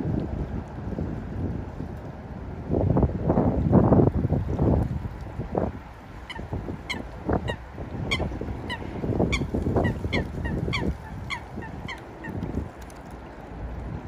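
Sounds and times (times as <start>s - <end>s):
wind rumble on microphone: 0.0s - 14.0s
waterbirds calling: 5.8s - 12.8s.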